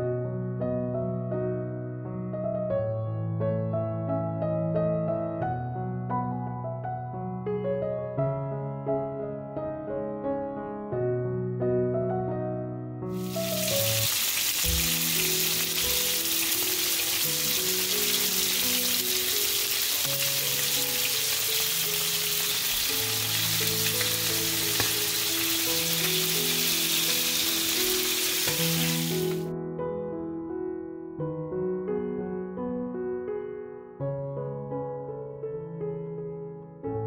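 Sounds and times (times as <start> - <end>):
chicken sizzling in a pan: 13.1 - 29.5.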